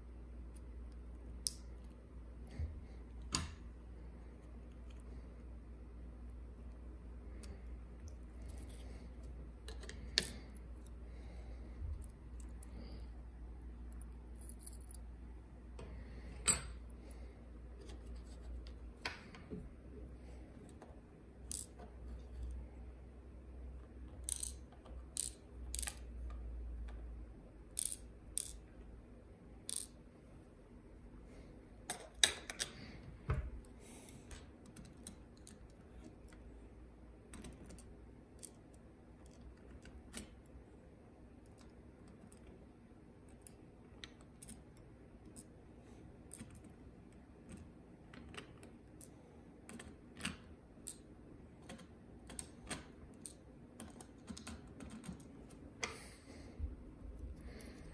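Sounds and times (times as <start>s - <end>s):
clicks of padlock parts: 24.2s - 26.4s.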